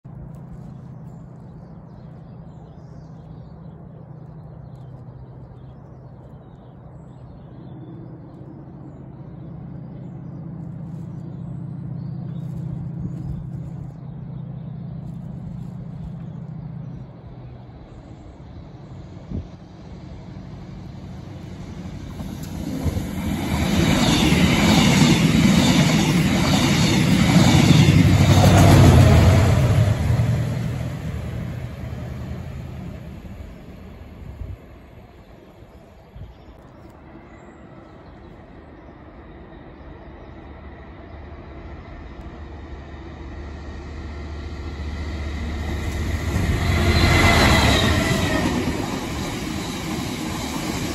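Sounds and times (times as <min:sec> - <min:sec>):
train wheels clattering over rails: 0:21.7 - 0:31.0.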